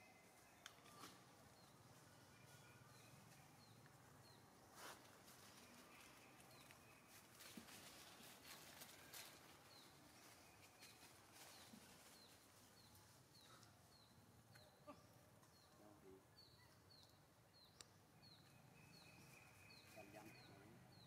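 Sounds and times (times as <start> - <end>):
dry leaves rustling: 4.7 - 13.3.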